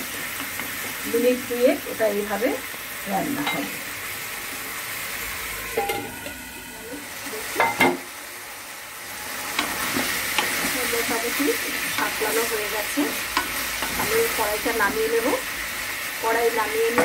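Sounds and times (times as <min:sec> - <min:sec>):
chicken sizzling in oil: 0:00.0 - 0:17.0.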